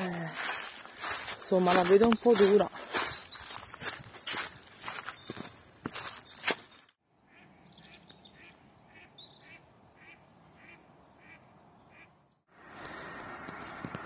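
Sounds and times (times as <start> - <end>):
footsteps crunching on dry leaves: 0.0 - 7.0
high bird chirps: 1.6 - 6.9
bird calls: 1.6 - 12.4.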